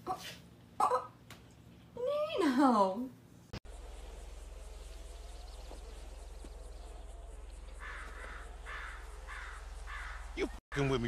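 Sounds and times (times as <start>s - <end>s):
low hum: 3.3s - 11.0s.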